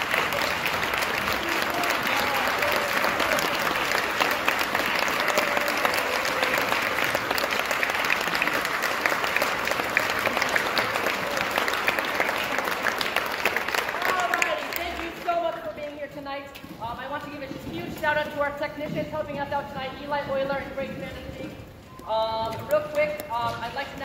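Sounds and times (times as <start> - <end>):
audience applauding: 0.0 - 15.8.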